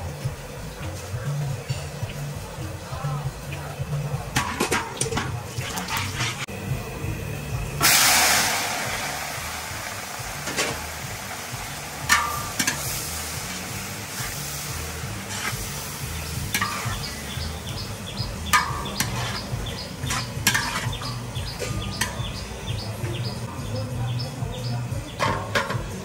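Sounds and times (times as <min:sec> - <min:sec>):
metal spatula scraping wok: 0:04.2 - 0:06.5, 0:10.4 - 0:23.4
cabbage sizzling in hot oil: 0:07.8 - 0:23.5.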